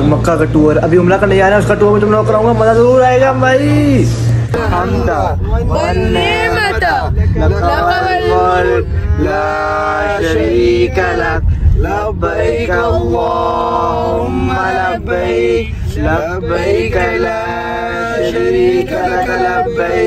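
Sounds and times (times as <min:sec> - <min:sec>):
van rumbling: 0:00.0 - 0:20.0
man singing: 0:04.5 - 0:13.4.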